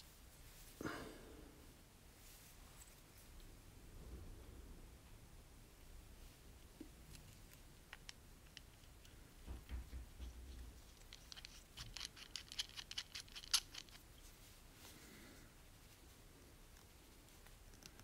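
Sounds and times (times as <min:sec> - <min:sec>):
small clicks and scratches: 0:06.7 - 0:14.4, 0:16.7 - 0:18.0.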